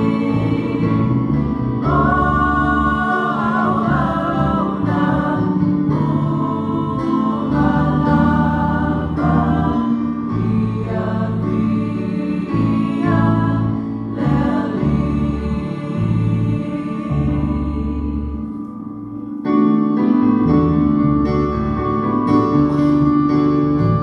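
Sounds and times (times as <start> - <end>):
women singing gospel song: 0.0 - 18.6
electric keyboard: 0.0 - 24.0.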